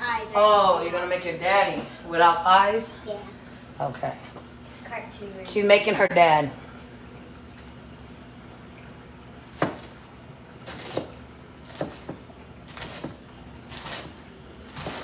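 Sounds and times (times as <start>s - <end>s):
knife chopping on cutting board: 9.5s - 10.0s, 10.6s - 15.0s.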